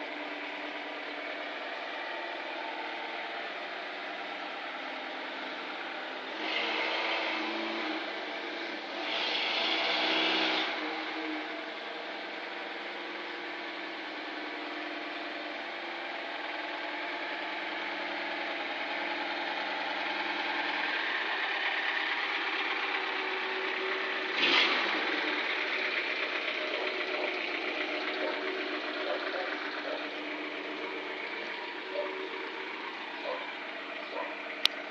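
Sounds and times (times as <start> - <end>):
car engine idling: 0.0 - 34.9.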